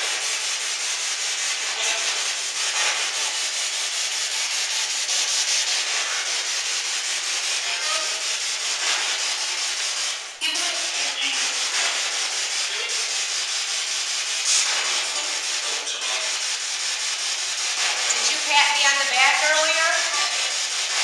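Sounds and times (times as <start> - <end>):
radio static hiss: 1.7 - 3.1, 14.4 - 16.5.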